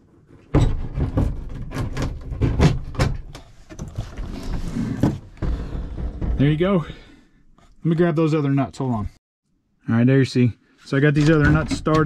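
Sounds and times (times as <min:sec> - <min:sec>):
knocks and clicks: 0:11.2 - 0:12.0.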